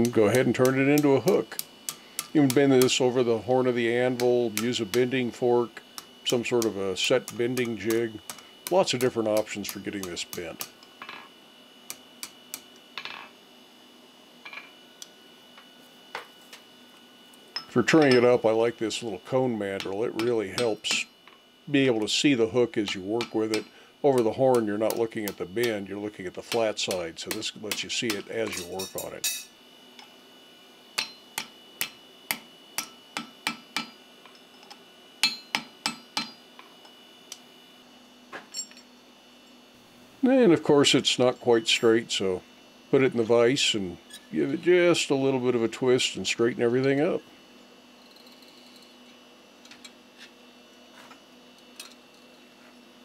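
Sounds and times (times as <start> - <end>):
hammer ringing on hot steel: 0.0 - 3.1, 19.8 - 21.1, 22.8 - 25.8, 26.5 - 29.5, 31.0 - 34.0, 35.2 - 36.4.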